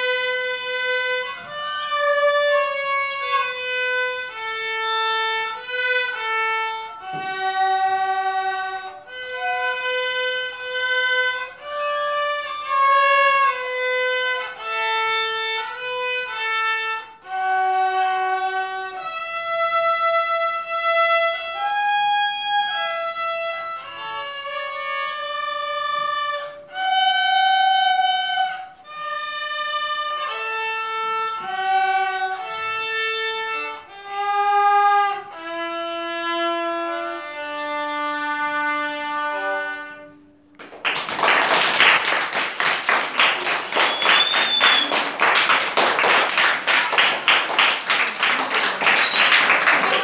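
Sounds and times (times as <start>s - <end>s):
violins playing slow melody: 0.0s - 40.3s
children clapping: 40.6s - 50.0s.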